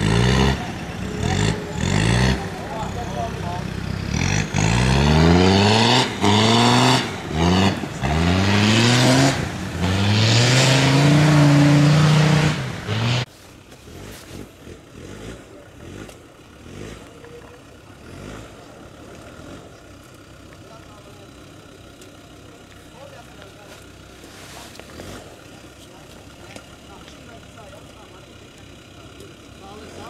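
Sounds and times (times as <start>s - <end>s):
diesel engine revving hard: 0.0s - 19.8s, 24.7s - 25.8s, 28.8s - 30.0s
distant engine working unevenly: 0.0s - 30.0s.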